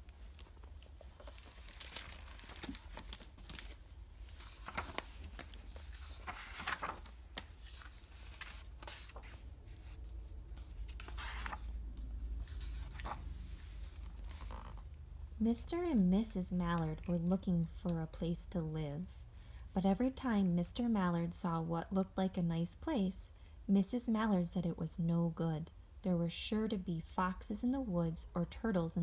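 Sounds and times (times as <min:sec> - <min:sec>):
paper pages rustling: 0:00.0 - 0:14.9.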